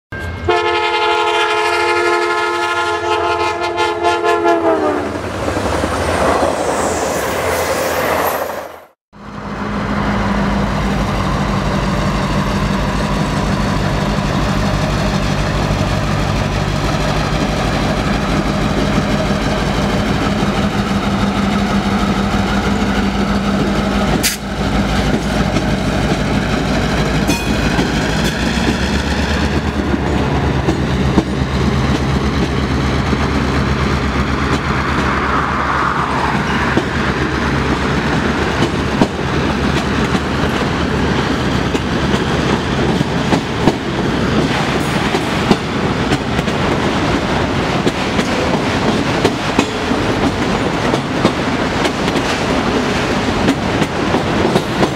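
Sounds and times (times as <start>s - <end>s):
diesel locomotive engine droning: 0.1s - 54.9s
train air horn chord: 0.2s - 5.1s
train rumbling: 0.2s - 54.9s.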